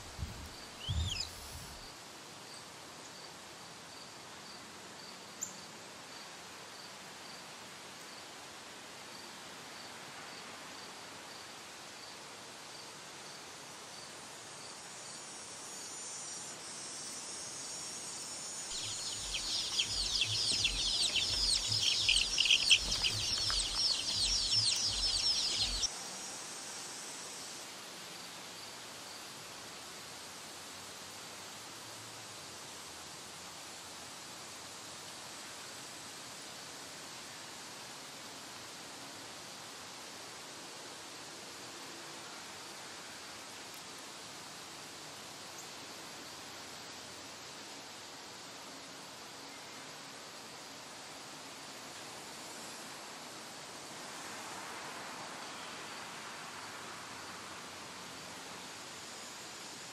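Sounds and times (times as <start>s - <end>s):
low steady hiss: 0.0s - 59.9s
baby chicks peeping: 0.3s - 1.8s, 18.7s - 25.9s.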